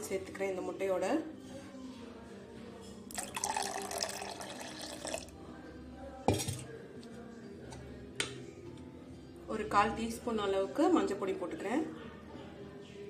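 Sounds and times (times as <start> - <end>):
milk pouring into a glass bowl: 3.1 - 5.4.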